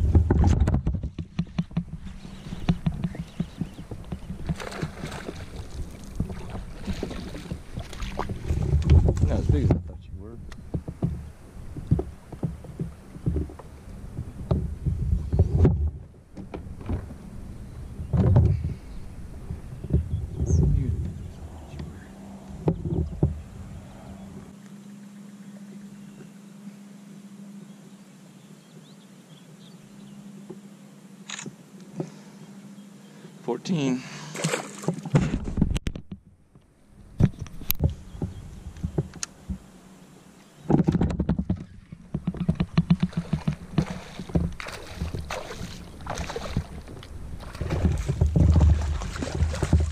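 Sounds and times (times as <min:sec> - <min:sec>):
fishing gear thumps and knocks: 0:00.0 - 0:05.0, 0:40.7 - 0:45.6
knocks and thumps from kayak: 0:00.0 - 0:21.8, 0:22.6 - 0:23.6, 0:34.4 - 0:36.6, 0:37.2 - 0:39.7, 0:40.6 - 0:49.9.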